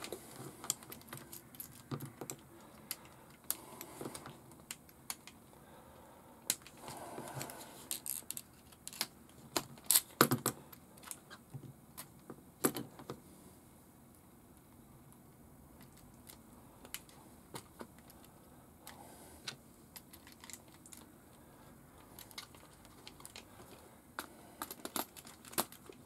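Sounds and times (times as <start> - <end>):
plastic and metal parts clicking: 6.5 - 11.4, 22.1 - 26.0.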